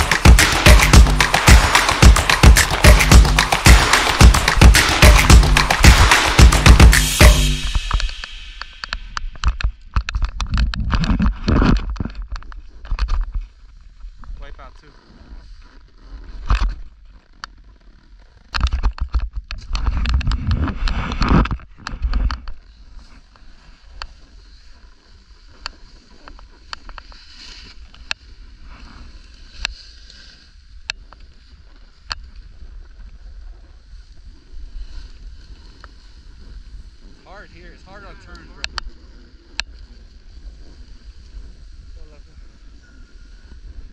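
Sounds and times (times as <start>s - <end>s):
low rushing hiss: 0.0s - 9.6s.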